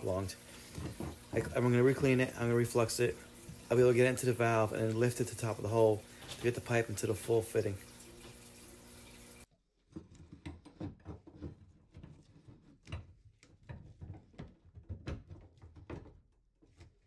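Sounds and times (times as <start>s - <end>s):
copper pipe clicks and scrapes: 9.8s - 15.9s.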